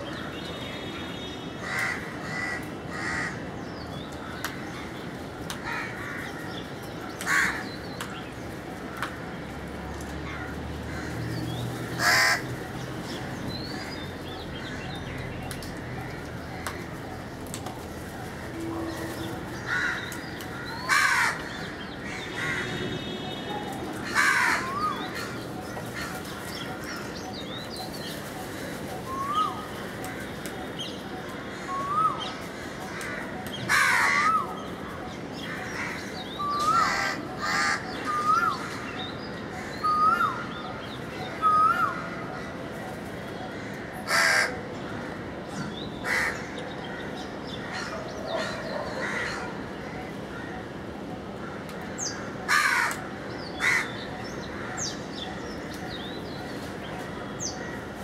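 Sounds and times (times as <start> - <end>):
crows cawing: 1.6 - 3.5, 5.5 - 7.8, 10.2 - 12.6, 18.0 - 22.8, 24.0 - 27.5, 28.4 - 38.9, 43.4 - 45.3, 46.0 - 55.4.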